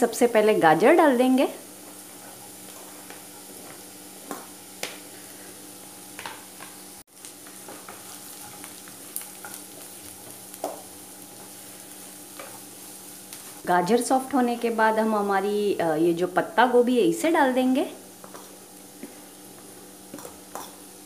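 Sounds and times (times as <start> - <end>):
vegetables sizzling in frying pan: 0.0 - 21.0.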